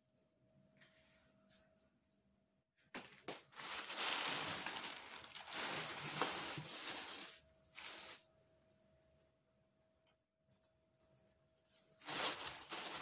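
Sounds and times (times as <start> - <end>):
plastic bags rustling: 3.0 - 8.2, 11.9 - 13.0.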